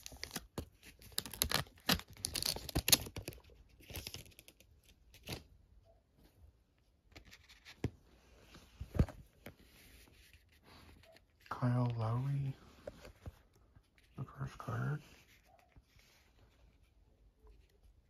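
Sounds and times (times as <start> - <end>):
foil wrapper tearing and crinkling: 1.0 - 3.3.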